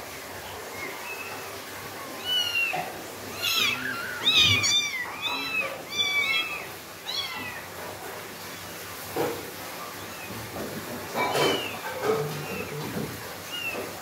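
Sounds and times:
kittens mewing: 0.6s - 8.0s.

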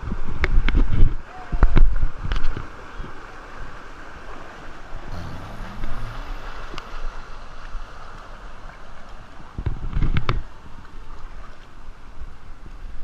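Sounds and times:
water rushing and lapping: 2.7s - 9.9s.

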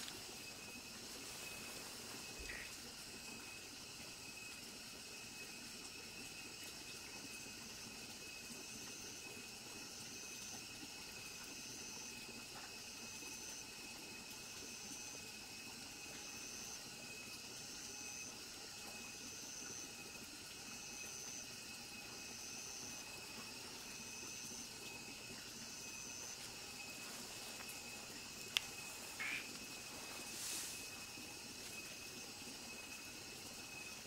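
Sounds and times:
insect high trill: 0.0s - 6.4s, 12.8s - 18.4s, 19.1s - 34.0s
repeated high insect call: 0.0s - 34.0s
steady hiss: 0.0s - 34.0s.

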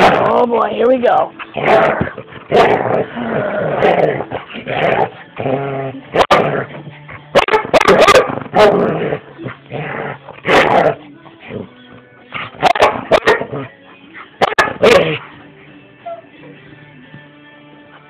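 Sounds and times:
dogs barking and yipping: 1.3s - 5.4s, 6.0s - 11.3s, 12.4s - 15.4s, 16.0s - 16.7s
dog whimpering: 16.0s - 16.6s.

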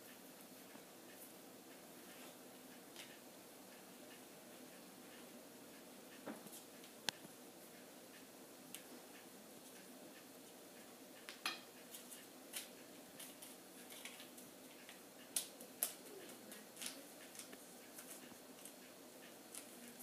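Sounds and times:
faint background hiss: 0.0s - 20.0s
utensils tapping mixing bowls: 11.3s - 11.8s.

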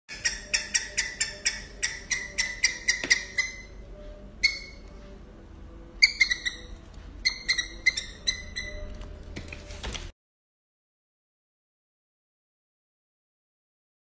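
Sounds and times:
prairie dog chirping: 0.1s - 3.8s, 4.4s - 4.9s, 6.0s - 8.9s.

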